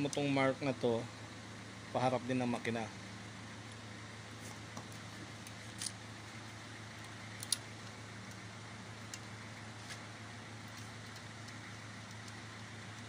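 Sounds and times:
low hum: 0:00.0 - 0:13.0
light metal clicks: 0:07.0 - 0:08.4.

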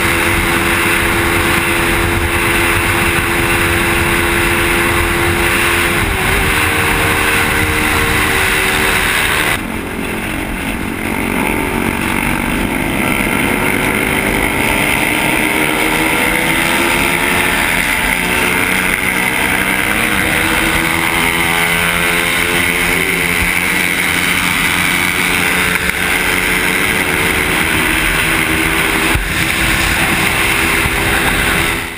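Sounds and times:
wind noise on microphone: 0:00.0 - 0:17.6, 0:24.2 - 0:31.9
motorcycle engine revving: 0:00.0 - 0:31.9.

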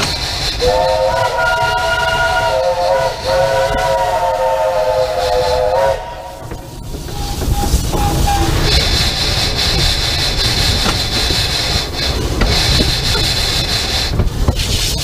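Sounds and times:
locomotive rolling rumble: 0:00.0 - 0:15.0
steam locomotive chime whistle: 0:00.6 - 0:08.8.

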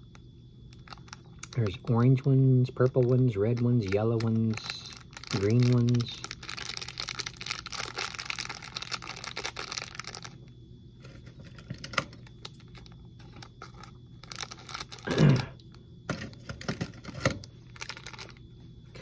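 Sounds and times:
plastic wrapper crinkling: 0:00.7 - 0:01.9, 0:03.0 - 0:10.4, 0:11.8 - 0:15.1, 0:16.8 - 0:19.0.

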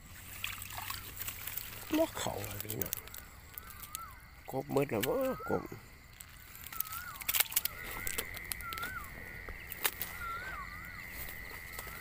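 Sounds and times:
sharp clicks and crackles: 0:01.1 - 0:04.2, 0:06.1 - 0:10.1
small animal chirping calls: 0:01.8 - 0:11.2.

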